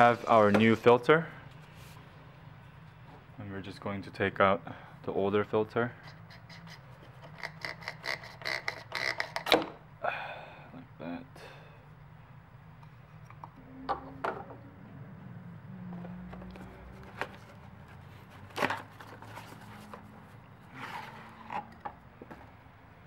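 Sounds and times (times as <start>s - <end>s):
cardboard rustle: 16.4s - 21.4s.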